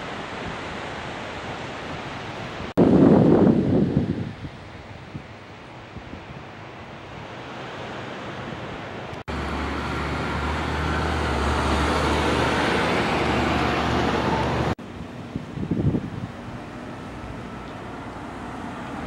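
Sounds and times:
wind on microphone: 0.0 - 7.5, 10.0 - 19.0
street traffic noise: 7.2 - 19.0
vehicle engine hum: 8.8 - 19.0.

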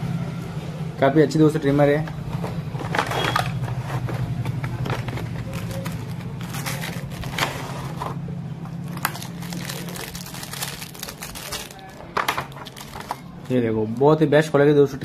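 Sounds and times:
cardboard box scraping and rubbing: 3.0 - 8.2.

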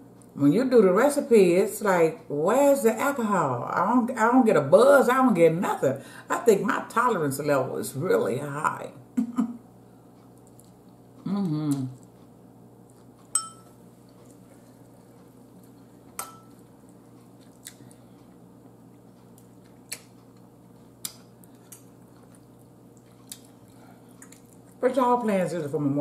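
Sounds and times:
faint room hum: 0.0 - 26.0
metal fork clinking against bowl: 13.3 - 13.7.

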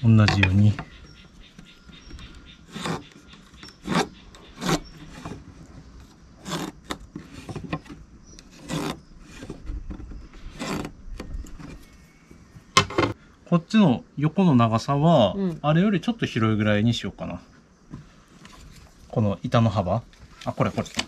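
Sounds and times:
pencil scratching on wood: 0.3 - 5.5, 6.4 - 7.8, 8.4 - 9.6, 10.4 - 10.9.

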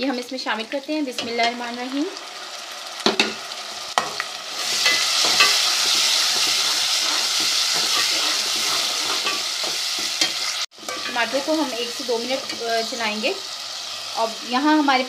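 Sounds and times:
paste sizzling in hot fat: 1.5 - 15.0.

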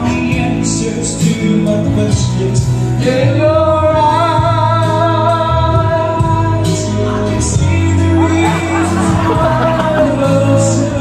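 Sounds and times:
person singing: 0.0 - 11.0
steady bass: 0.0 - 11.0.

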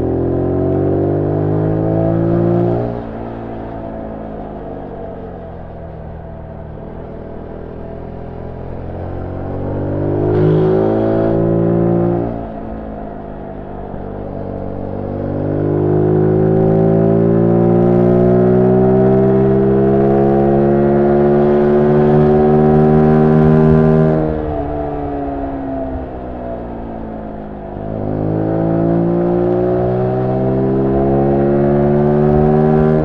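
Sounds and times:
motorcycle engine revving: 8.4 - 12.8, 14.8 - 26.3, 27.7 - 33.0.

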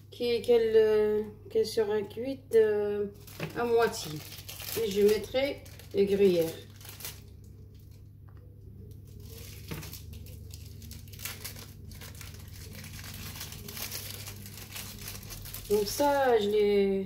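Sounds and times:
plastic film crinkling: 3.1 - 8.1, 8.8 - 16.6.

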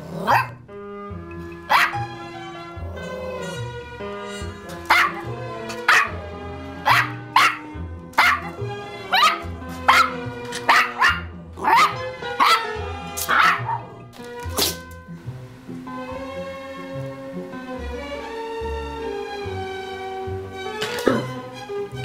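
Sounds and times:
puppy barking: 0.0 - 0.6, 1.7 - 2.2, 4.6 - 6.2, 6.8 - 14.0.

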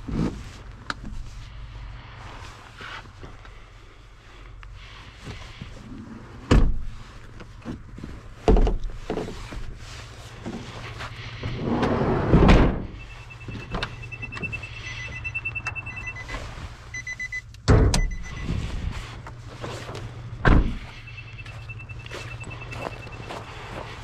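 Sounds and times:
steady low hum: 0.0 - 24.0
van doors thumping shut: 6.5 - 6.9, 12.2 - 13.0, 20.4 - 20.8
electronic warning chime: 13.0 - 17.4, 18.0 - 18.6, 20.9 - 23.8.

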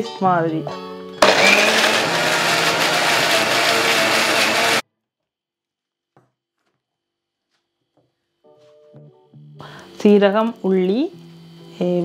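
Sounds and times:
mixer grinder whirring: 1.2 - 4.8.

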